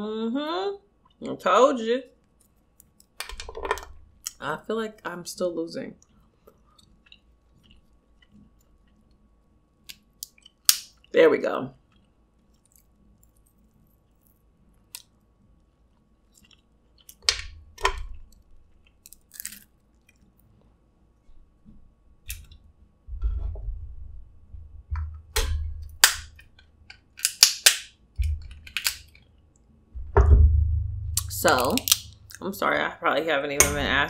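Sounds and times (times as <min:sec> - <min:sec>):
close-up chewing: 0:06.0 - 0:09.5, 0:11.8 - 0:17.2
crab shells cracking by hand: 0:09.8 - 0:11.1, 0:11.9 - 0:15.2, 0:16.0 - 0:20.4, 0:25.3 - 0:29.6, 0:31.2 - 0:32.4.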